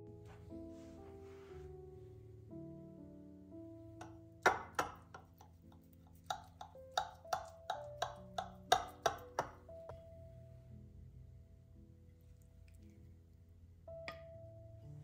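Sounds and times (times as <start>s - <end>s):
soft background music: 0.0s - 15.0s
knife tapping glass dish: 4.0s - 5.5s, 6.2s - 9.6s.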